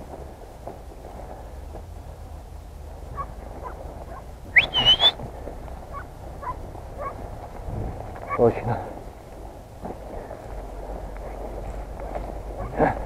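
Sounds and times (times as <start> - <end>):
faint rustles: 0.0 - 13.0
low wind rumble: 0.0 - 13.0
high rising whistle: 4.6 - 5.2.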